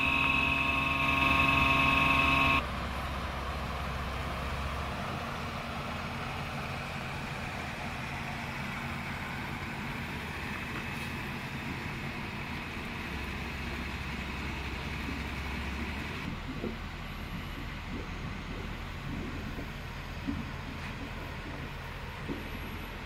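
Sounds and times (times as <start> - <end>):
air blower humming: 0.0 - 2.6.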